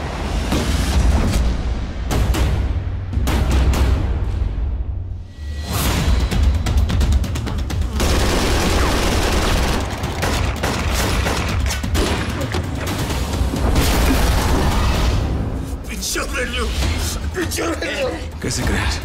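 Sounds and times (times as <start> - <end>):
dramatic music: 0.0 - 19.0
automatic gunfire: 7.9 - 12.3.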